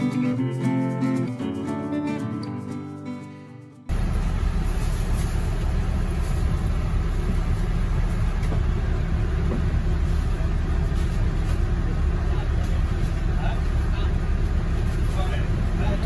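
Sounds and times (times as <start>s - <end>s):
guitar music: 0.0s - 3.9s
bus engine drone: 3.9s - 16.0s.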